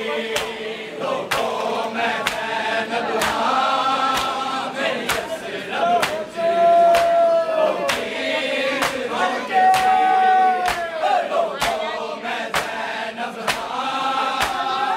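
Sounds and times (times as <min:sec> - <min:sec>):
men chanting in unison: 0:00.0 - 0:14.9
chest beating slaps: 0:01.3 - 0:02.5, 0:04.1 - 0:04.4, 0:05.1 - 0:05.4, 0:06.0 - 0:06.2, 0:06.9 - 0:07.2, 0:11.6 - 0:11.9, 0:13.4 - 0:14.7.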